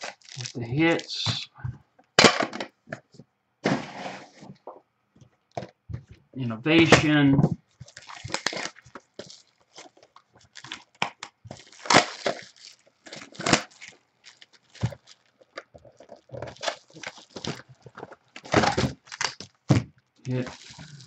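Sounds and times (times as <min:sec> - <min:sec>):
plastic wrap crackling: 0:00.0 - 0:01.5, 0:06.8 - 0:21.0.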